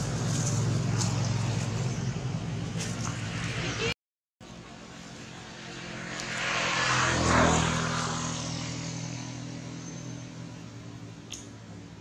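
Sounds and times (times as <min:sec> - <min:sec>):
passing engine: 0:00.0 - 0:12.0.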